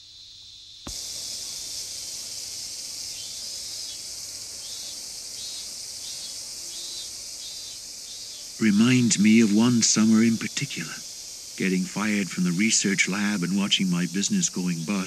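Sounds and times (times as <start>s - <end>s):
cicadas buzzing: 0.0s - 15.0s.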